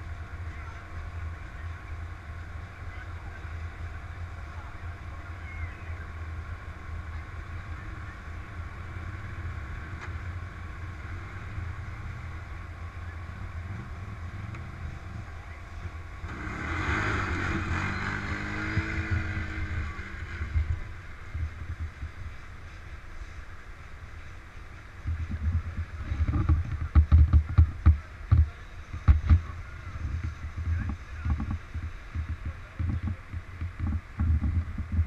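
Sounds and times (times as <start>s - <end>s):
quad bike engine idling: 0.0s - 35.0s
quad bike engine revving: 7.0s - 22.0s.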